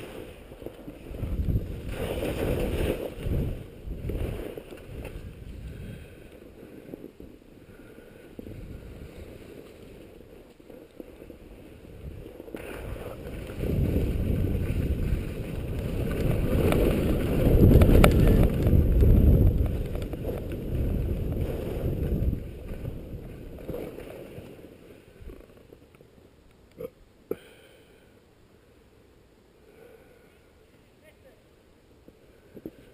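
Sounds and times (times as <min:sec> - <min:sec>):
wind buffeting microphone: 0:00.0 - 0:10.4, 0:11.3 - 0:24.1
skis sliding over snow: 0:00.0 - 0:26.3.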